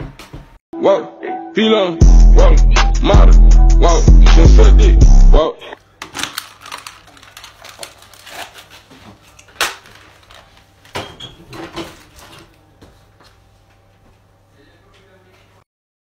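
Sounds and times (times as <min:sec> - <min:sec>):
objects knocking and clattering: 0:06.0 - 0:12.5.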